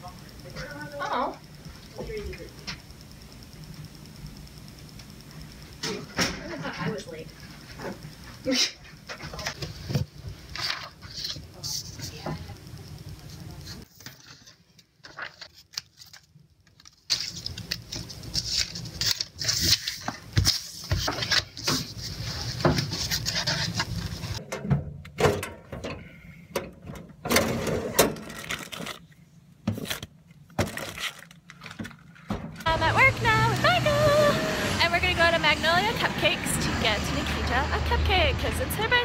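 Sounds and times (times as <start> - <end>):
paper rustling: 13.6 - 24.4.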